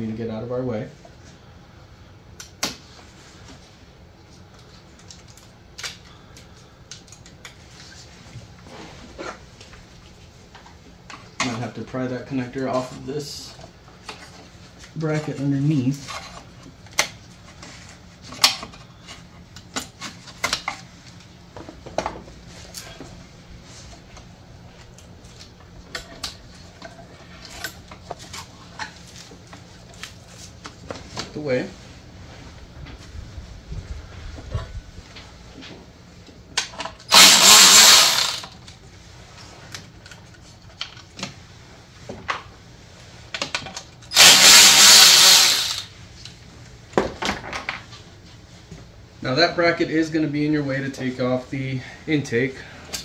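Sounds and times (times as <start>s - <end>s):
cordless power tool spinning: 37.0s - 38.6s, 44.1s - 45.9s.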